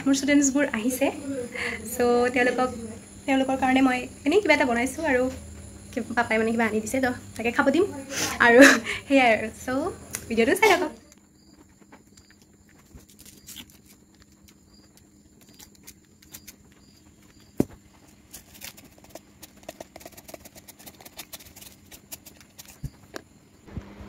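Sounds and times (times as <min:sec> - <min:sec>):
sprinkles shaken from plastic bottle: 0:18.3 - 0:22.9.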